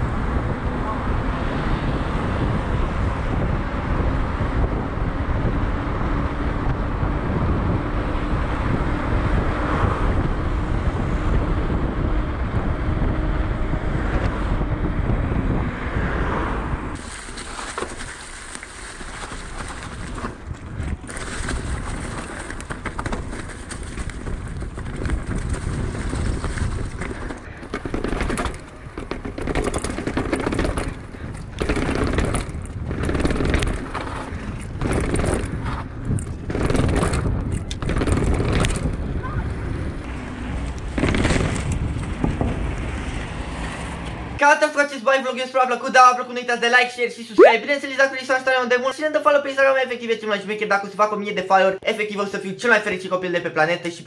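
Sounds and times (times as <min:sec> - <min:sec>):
rolling tyre noise: 0:00.0 - 0:44.4
wind buffeting microphone: 0:00.0 - 0:44.4
bike clicks and rattles: 0:17.0 - 0:39.2, 0:40.0 - 0:44.2.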